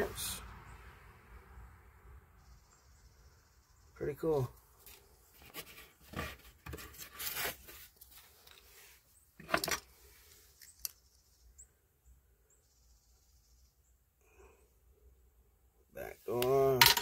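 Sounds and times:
objects knocking: 16.4s - 17.0s.

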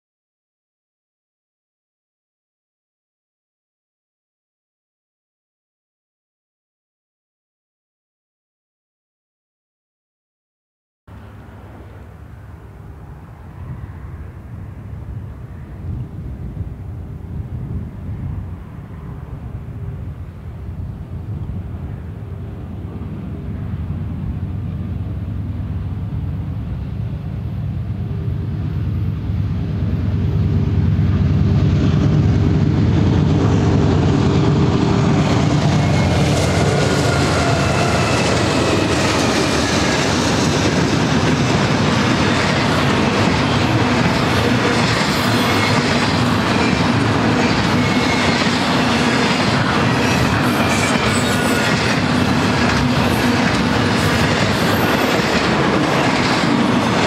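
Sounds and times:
locomotive engine rumble: 11.1s - 57.0s
train wheel clatter: 31.0s - 57.0s
high wheel squeals: 35.6s - 39.9s, 44.2s - 52.3s.

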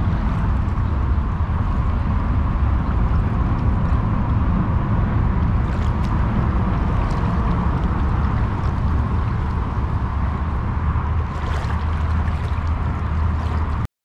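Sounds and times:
creek water sloshing and gurgling: 0.0s - 13.9s.

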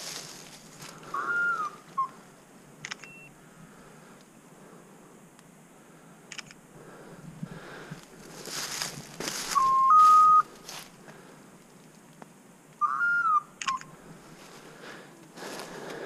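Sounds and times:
rustling in brush: 0.0s - 1.2s, 8.0s - 12.0s.

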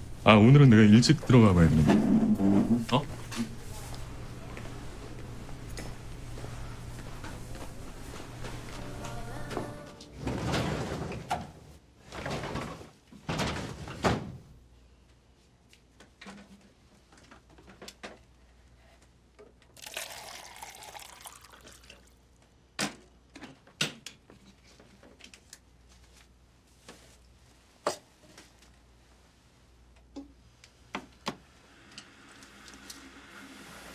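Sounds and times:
water being poured: 19.8s - 22.1s.

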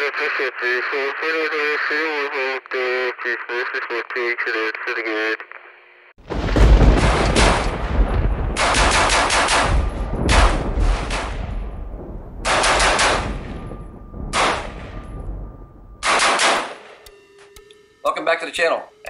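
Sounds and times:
rifle shots: 6.8s - 7.9s, 8.5s - 11.7s, 12.4s - 13.7s, 14.3s - 15.2s, 16.0s - 17.0s.

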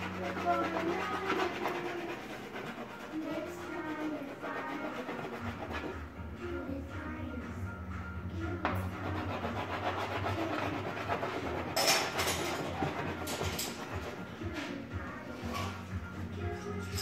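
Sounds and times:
crayon scribbling on board: 0.0s - 6.1s, 8.8s - 14.8s.

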